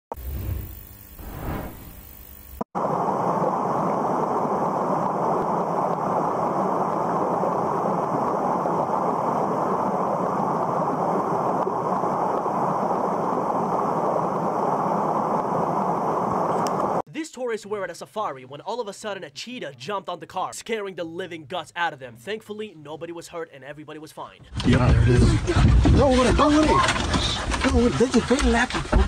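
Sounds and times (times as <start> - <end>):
faint intro sound: 0.1 - 2.3
muffled underwater rushing: 2.8 - 17.0.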